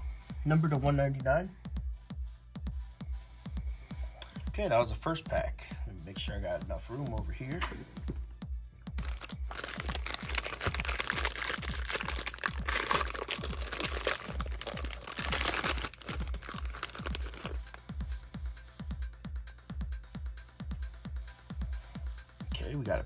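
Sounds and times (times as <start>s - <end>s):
background music with steady beat: 0.0s - 23.0s
foil wrapper tearing and crinkling: 9.0s - 17.8s.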